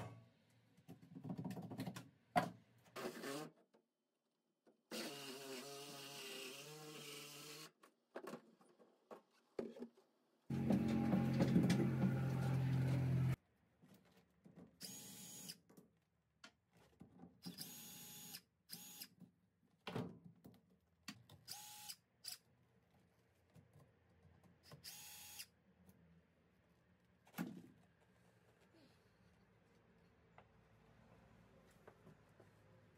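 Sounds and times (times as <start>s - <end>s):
power tool running: 10.5s - 13.4s
cordless drill whirring: 17.5s - 19.1s, 21.5s - 22.0s, 24.8s - 25.5s.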